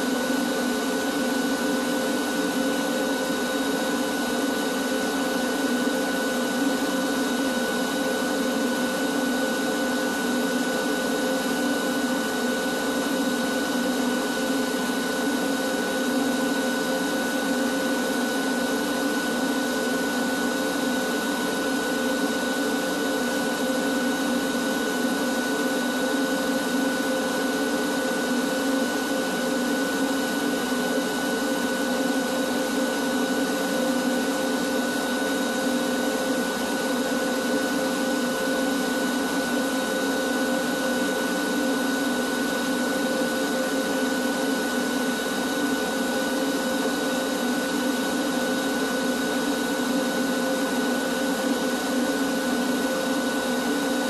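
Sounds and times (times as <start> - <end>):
shop vacuum running: 0.0 - 54.0.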